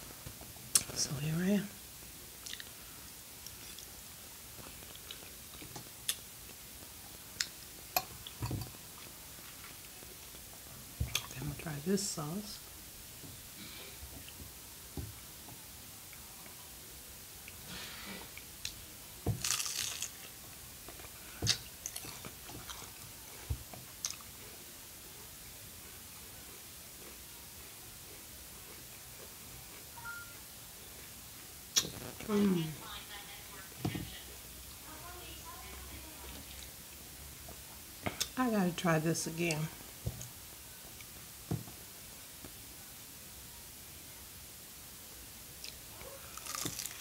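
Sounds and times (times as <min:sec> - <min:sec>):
wet mouth clicks and smacks: 0:02.4 - 0:02.7, 0:21.4 - 0:22.1, 0:31.7 - 0:32.1
person chewing food: 0:02.4 - 0:11.3, 0:17.4 - 0:32.6, 0:45.6 - 0:47.0
crisp wrapper crunching: 0:19.3 - 0:20.4, 0:46.3 - 0:47.0.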